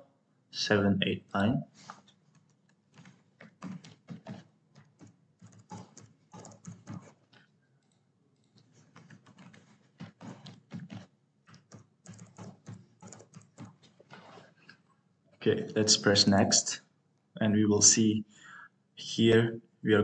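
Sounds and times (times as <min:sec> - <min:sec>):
typing on computer keyboard: 0:02.3 - 0:14.4.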